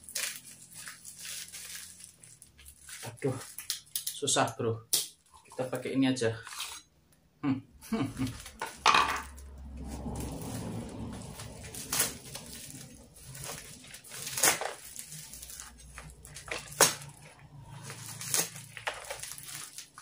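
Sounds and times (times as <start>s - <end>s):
plastic sack rustling: 0.0s - 3.9s, 8.2s - 20.0s.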